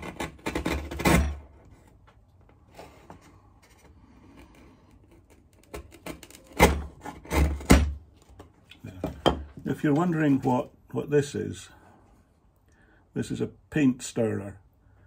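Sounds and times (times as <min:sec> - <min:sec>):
chisel scraping wood: 0:00.0 - 0:02.0, 0:02.6 - 0:08.5.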